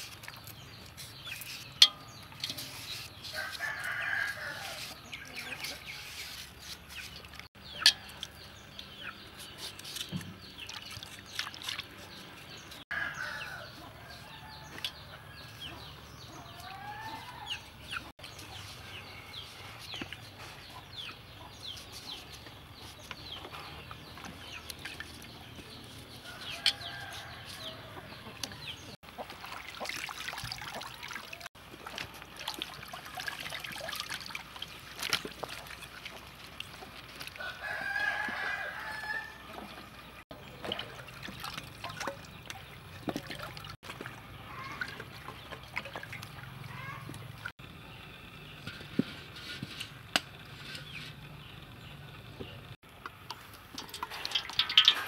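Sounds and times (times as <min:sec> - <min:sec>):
peelers scraping banana skins: 0:00.0 - 0:08.1, 0:09.2 - 0:12.8, 0:21.6 - 0:28.3, 0:48.6 - 0:51.4
chickens clucking: 0:11.8 - 0:29.4.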